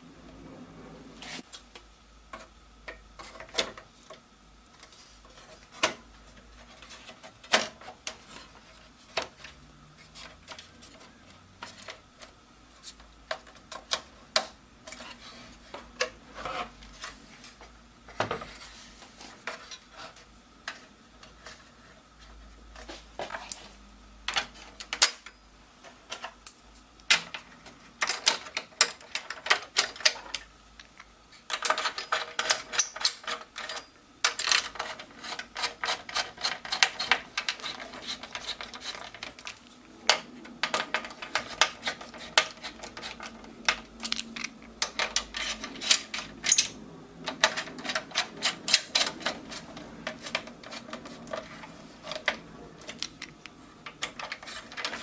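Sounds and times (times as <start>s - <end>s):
metal brackets handled: 31.5s - 55.0s.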